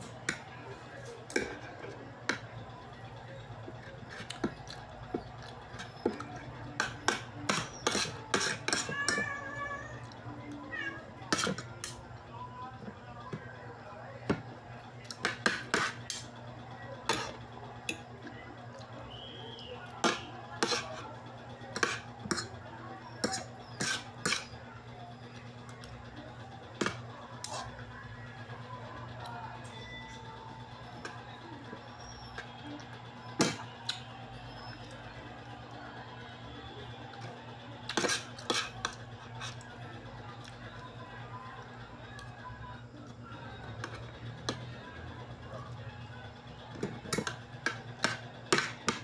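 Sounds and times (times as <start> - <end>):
cutlery clinking on a plate: 5.8 - 9.2, 11.3 - 12.0, 21.8 - 22.5, 23.2 - 24.5, 37.9 - 39.6, 46.8 - 49.0.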